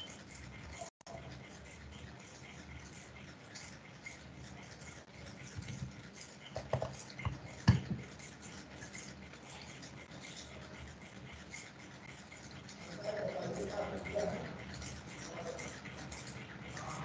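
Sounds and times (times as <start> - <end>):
sharp clicks and knocks: 5.4 - 8.1.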